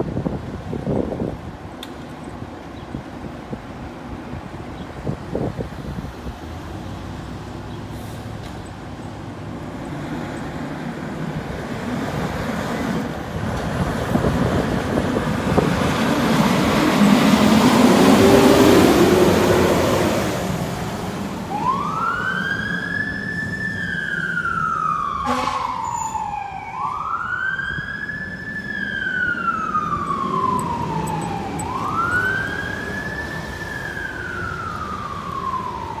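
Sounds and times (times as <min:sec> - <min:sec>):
fire engine passing: 0:02.4 - 0:36.0
siren wailing: 0:21.4 - 0:36.0.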